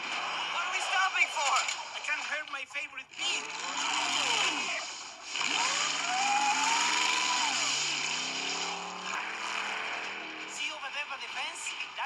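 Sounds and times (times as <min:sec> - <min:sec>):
truck engine revving: 0:03.1 - 0:12.0
wheels spinning in mud: 0:03.2 - 0:10.8.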